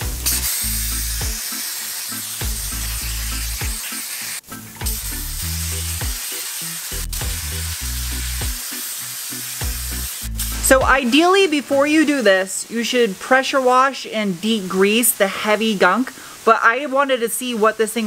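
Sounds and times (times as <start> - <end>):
background music with bass line: 0.0 - 1.4, 2.4 - 3.8, 4.5 - 6.2, 6.8 - 8.6, 9.6 - 11.0
dry ice blaster hissing: 0.0 - 12.2.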